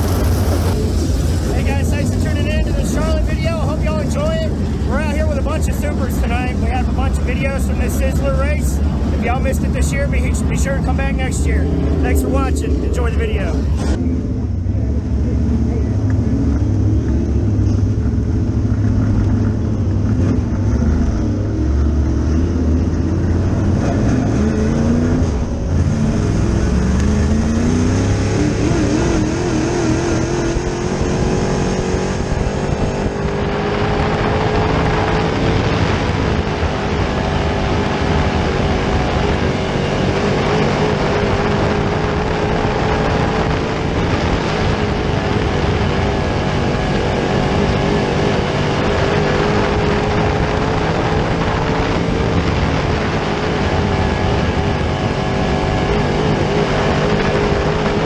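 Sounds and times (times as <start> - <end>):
rushing noise: 0.0 - 14.2
race car engine revving: 0.0 - 58.0.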